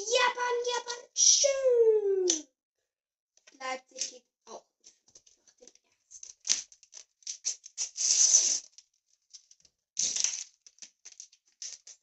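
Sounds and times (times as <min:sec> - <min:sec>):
wrappers crinkling: 0:06.2 - 0:12.0
wrapper ripping open: 0:09.4 - 0:12.0.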